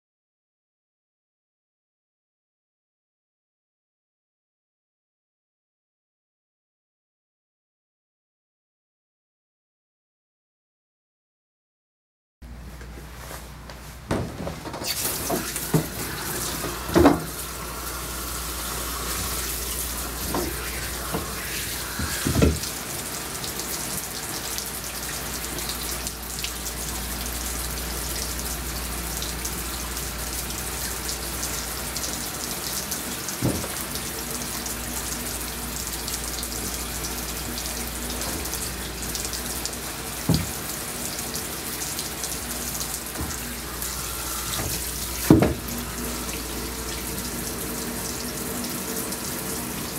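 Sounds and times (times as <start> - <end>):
water spraying from hose: 14.8 - 49.9.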